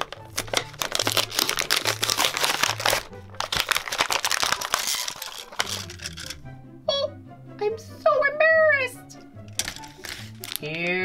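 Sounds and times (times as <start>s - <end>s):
plastic packaging crinkling: 0.0s - 6.4s, 9.5s - 10.8s.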